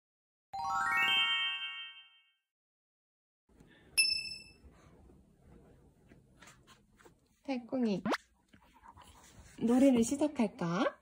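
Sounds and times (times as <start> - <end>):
sharp ding: 4.0 - 4.6.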